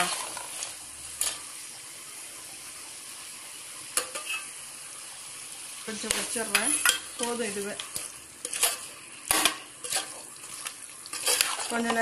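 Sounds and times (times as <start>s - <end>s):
ladle scraping a metal pot: 0.0s - 1.4s, 4.1s - 4.5s, 8.0s - 12.0s
chicken frying sizzle: 0.0s - 12.0s.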